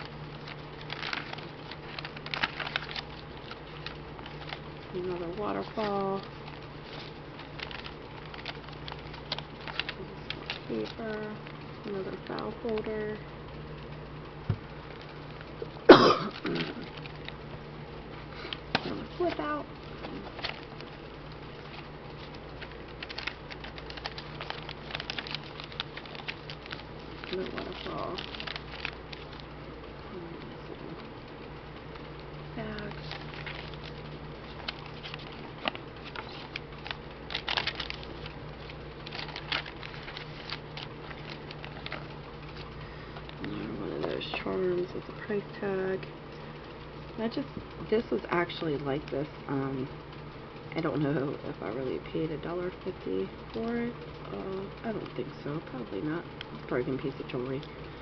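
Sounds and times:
paper pages rustling: 0.0s - 12.9s, 14.5s - 17.4s, 18.3s - 29.6s, 30.4s - 45.0s
steady low hum: 0.0s - 58.0s
person coughing: 15.9s - 16.8s
throat clearing: 15.9s - 16.8s.

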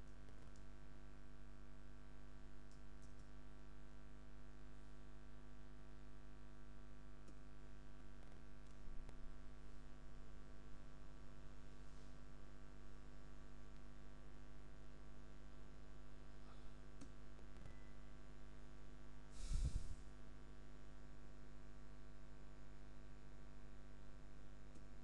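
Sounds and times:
mains hum and hiss: 0.0s - 25.0s
faint clicks: 2.7s - 3.4s
breath puff on microphone: 19.3s - 20.0s.

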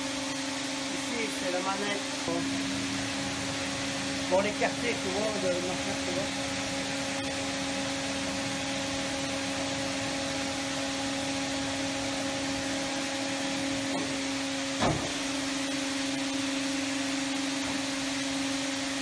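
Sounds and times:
machine motor humming: 0.0s - 19.0s
machine clunk: 14.8s - 15.3s.

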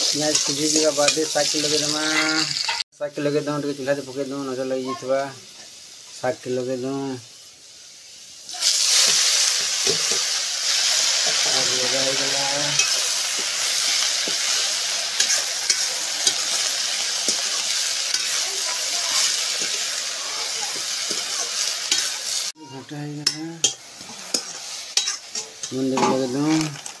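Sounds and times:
greens sizzling in hot oil: 0.0s - 27.0s.

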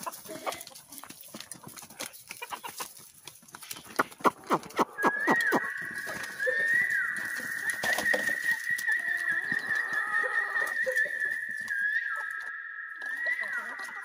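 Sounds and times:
chickens clucking and squawking: 0.0s - 14.0s
high wavering whistling tone: 4.4s - 14.0s.

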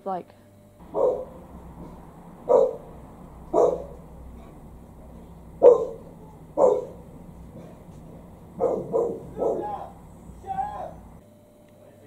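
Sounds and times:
dog barking: 0.8s - 11.2s.

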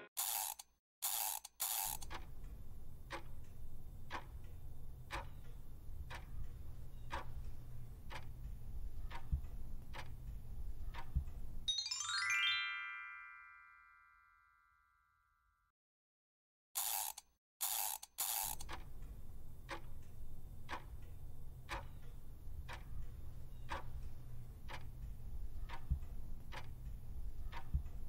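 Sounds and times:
clock ticking: 1.6s - 11.7s, 17.7s - 28.0s
rising chime: 11.7s - 15.0s.

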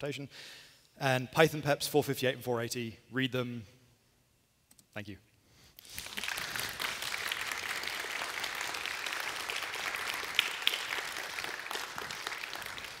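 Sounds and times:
audience applauding: 5.8s - 13.0s.

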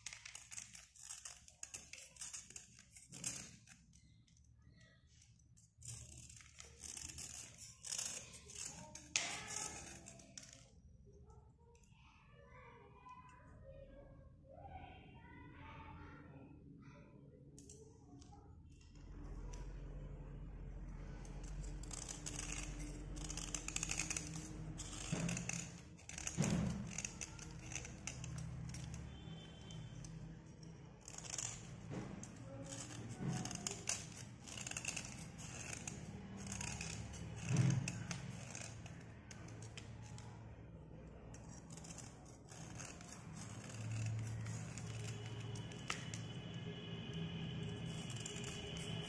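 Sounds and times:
knife scraping slate pencil: 0.0s - 10.8s, 20.9s - 49.0s.

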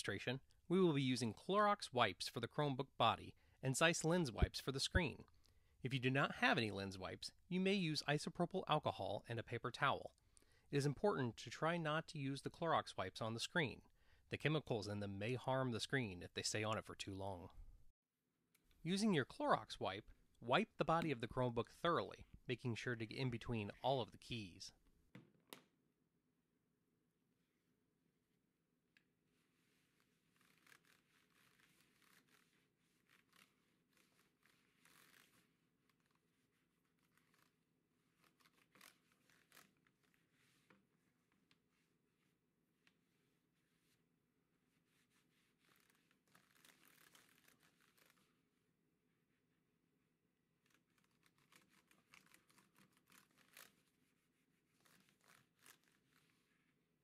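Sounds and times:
wipe rubbing over keyboard: 29.2s - 48.5s, 50.6s - 56.9s.

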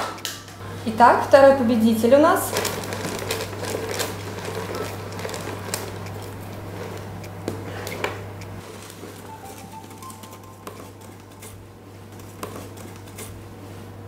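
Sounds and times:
paper slips rustling: 8.9s - 12.8s.

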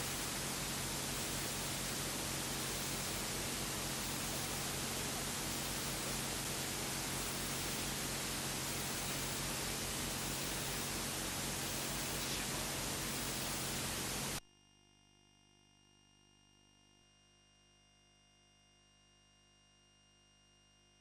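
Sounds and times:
low electrical hum: 0.0s - 14.4s
static hiss: 0.0s - 14.4s.

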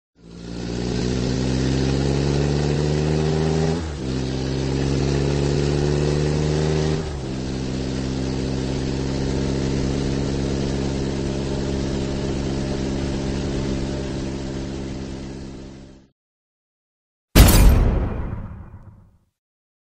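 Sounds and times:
vehicle engine accelerating: 0.2s - 15.9s.

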